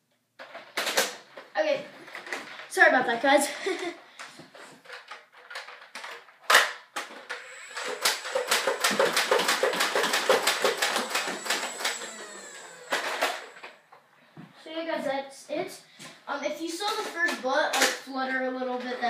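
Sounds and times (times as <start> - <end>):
toy blaster motor whine: 7.3 - 13.8
rapid clicking: 7.8 - 13.4.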